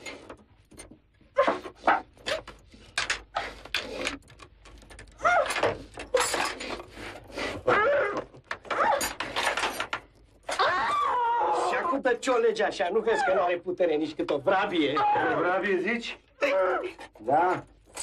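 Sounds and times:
person crying out and grunting: 15.0 - 15.4, 16.4 - 17.0.

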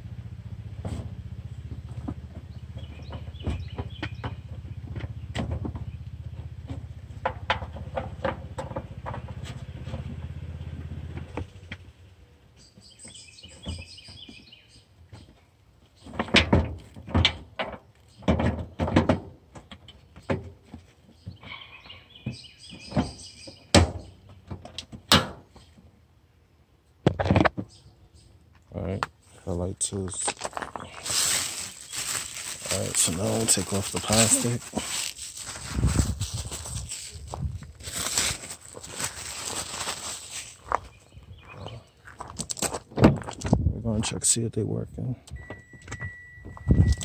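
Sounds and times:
birds chirping: 1.4 - 6.6, 12.2 - 16.3, 19.6 - 24.6, 27.6 - 37.5, 38.5 - 42.3
low steady rumble: 28.7 - 42.0.

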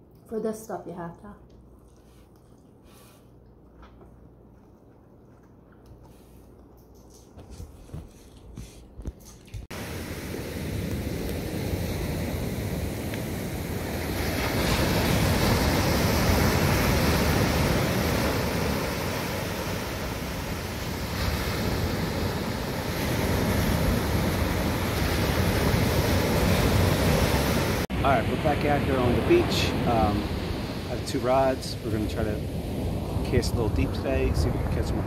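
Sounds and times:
ocean surf rushing: 9.7 - 35.0.

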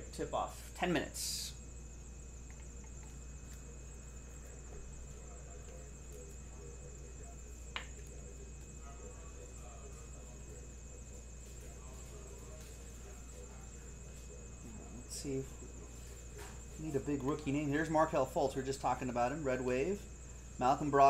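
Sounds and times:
faint high-pitched whine: 0.0 - 21.0
low electrical hum: 0.0 - 21.0.

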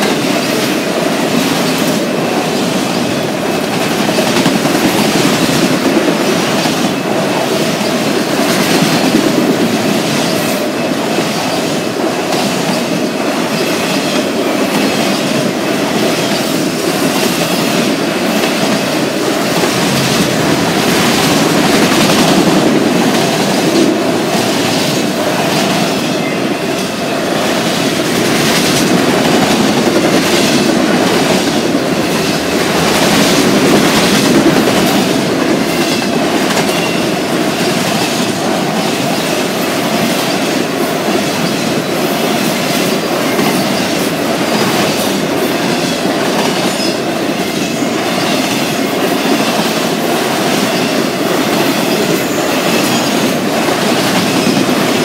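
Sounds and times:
freight cars rumbling past: 18.2 - 23.4.

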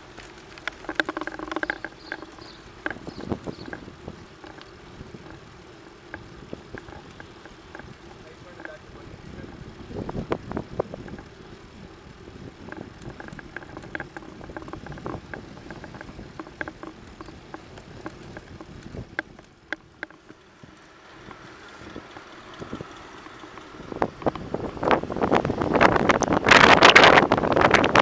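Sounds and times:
clicks and knocks: 0.6 - 3.8
wind noise on microphone: 0.6 - 28.0.

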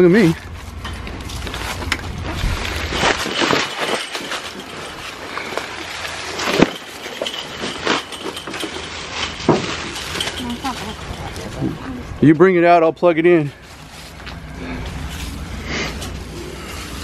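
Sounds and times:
dry leaves crunching underfoot: 1.3 - 6.9.

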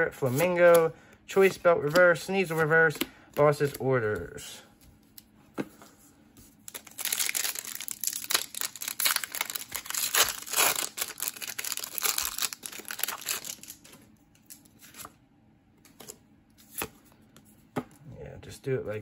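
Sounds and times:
foil wrapper crinkling and tearing: 6.6 - 15.1.

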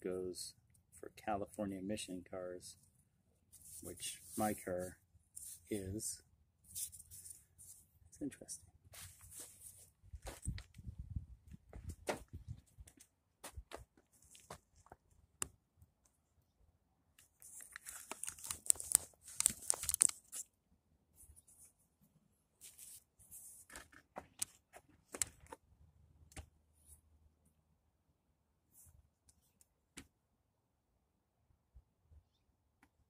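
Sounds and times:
plastic crinkling and tearing: 17.4 - 20.4.

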